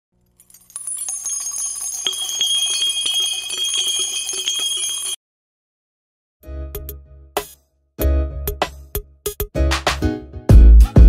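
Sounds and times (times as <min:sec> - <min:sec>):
shimmering jingling bells: 0:00.4 - 0:05.2.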